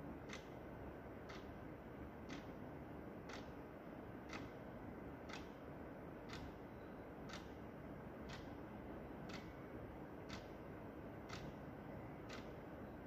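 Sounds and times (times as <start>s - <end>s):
wall clock ticking: 0.2s - 0.6s, 1.2s - 1.5s, 2.2s - 2.5s, 3.3s - 3.6s, 4.2s - 4.6s, 5.2s - 5.6s, 6.3s - 6.5s, 7.3s - 7.6s, 8.2s - 8.6s, 9.2s - 9.6s, 10.2s - 12.6s.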